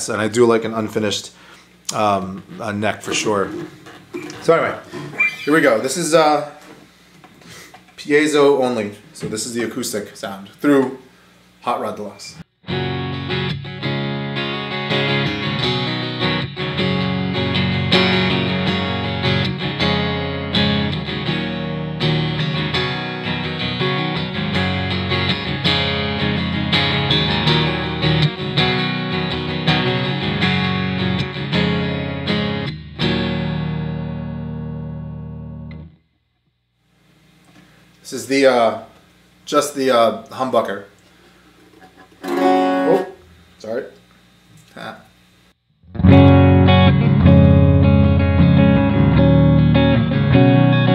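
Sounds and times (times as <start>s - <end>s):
amplified acoustic guitar strumming: 12.7s - 34.8s, 41.7s - 43.3s.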